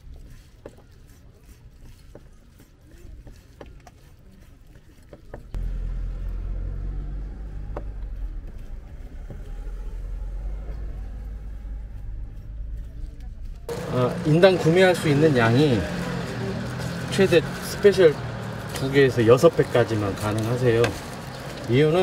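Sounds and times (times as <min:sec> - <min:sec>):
loud steady low rumble: 0:05.6 - 0:17.4.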